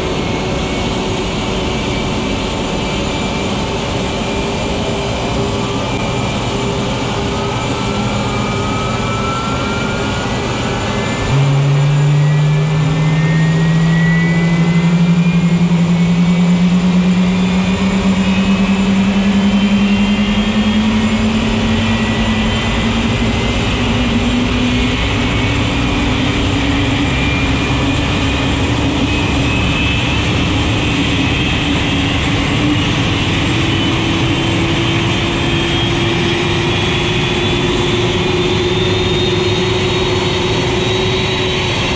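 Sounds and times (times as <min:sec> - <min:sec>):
jet engine whine rising: 0:00.0 - 0:41.9.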